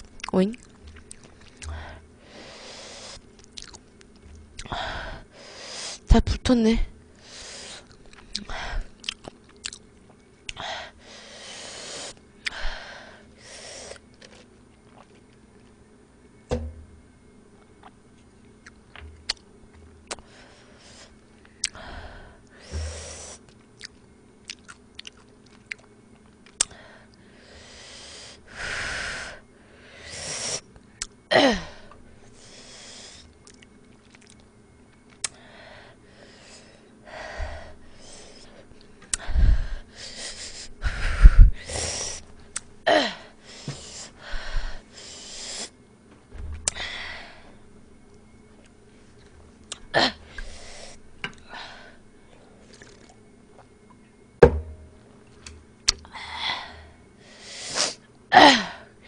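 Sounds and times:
chewing: 0:00.1 - 0:01.7, 0:03.3 - 0:04.7, 0:07.8 - 0:10.2, 0:14.0 - 0:15.8, 0:23.5 - 0:26.7, 0:33.4 - 0:35.4
loud low thumps: 0:54.4 - 0:55.0.

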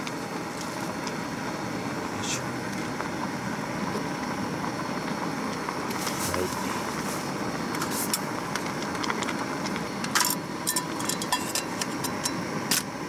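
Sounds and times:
gas burner hissing: 0:00.0 - 0:13.0
metal pot lid clink: 0:10.2 - 0:12.8.

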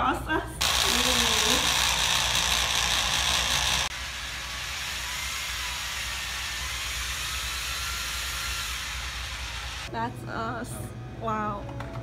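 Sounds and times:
electric drill running: 0:00.6 - 0:09.9.

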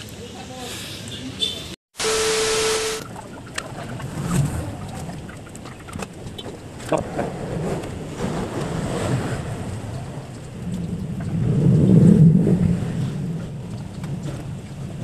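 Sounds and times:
static hiss with beep: 0:02.0 - 0:03.1
low outdoor rumble: 0:03.0 - 0:15.0.

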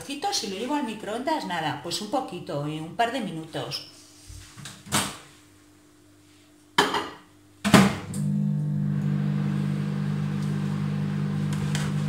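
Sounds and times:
microwave humming: 0:07.8 - 0:12.0.

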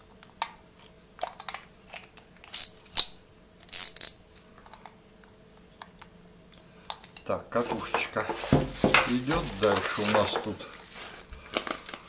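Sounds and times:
rustling: 0:07.6 - 0:12.0.

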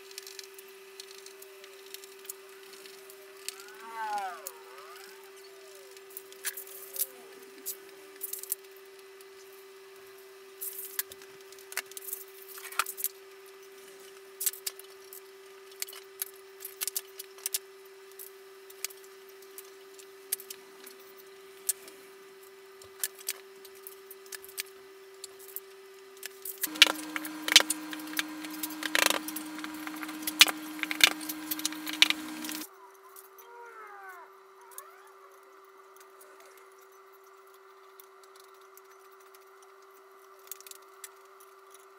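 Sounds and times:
steady hum: 0:02.4 - 0:08.4, 0:26.6 - 0:32.7.

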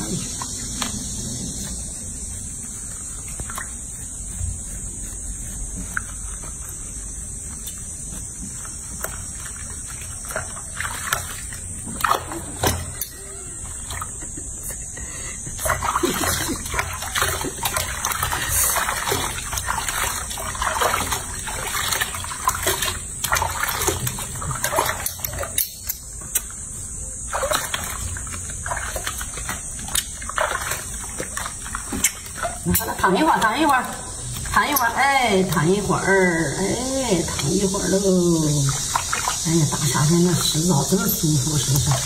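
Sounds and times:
water dripping: 0:00.0 - 0:04.4, 0:15.6 - 0:26.7, 0:27.3 - 0:42.0
soapy water sloshing and splashing: 0:00.0 - 0:42.0.

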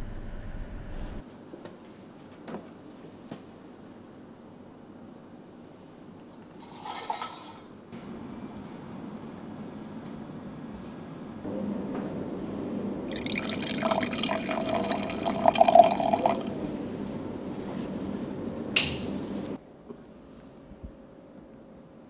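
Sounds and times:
wine pouring into a glass: 0:06.6 - 0:07.7, 0:13.1 - 0:16.7.

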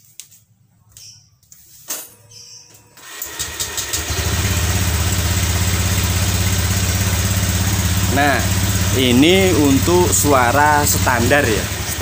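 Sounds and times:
scooter engine starting and idling: 0:02.8 - 0:12.0.

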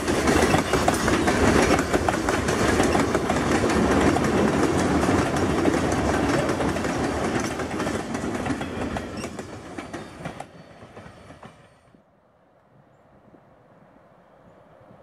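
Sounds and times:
wheels clicking over rail joints: 0:00.0 - 0:11.6
freight train rolling past: 0:00.0 - 0:12.1.

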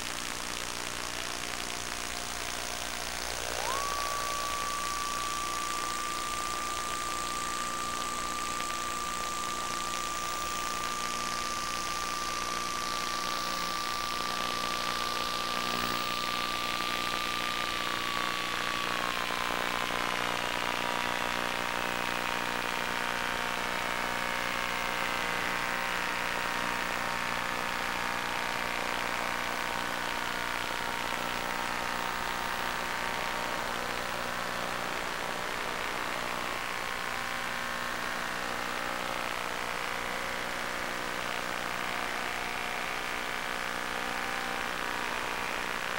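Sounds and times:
electric motor and propeller whine: 0:00.3 - 0:45.9
steady tone: 0:00.6 - 0:20.2.

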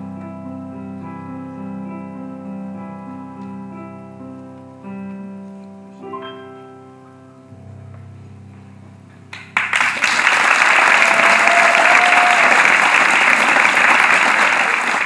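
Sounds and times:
audience applause: 0:09.3 - 0:15.0.

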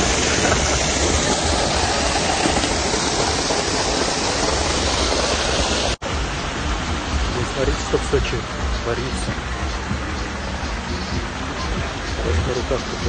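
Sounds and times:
water gushing from drainpipe: 0:00.0 - 0:06.0
water splashing on pavement: 0:00.0 - 0:13.0.

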